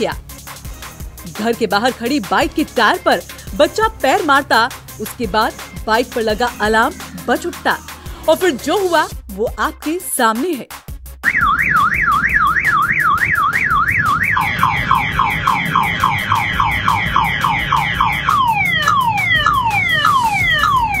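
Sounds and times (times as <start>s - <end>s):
motorcycle alarm: 11.2s - 21.0s.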